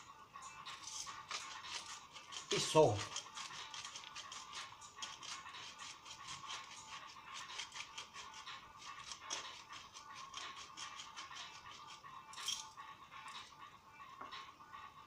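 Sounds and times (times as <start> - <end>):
salt grinder grinding: 0.7 - 12.1.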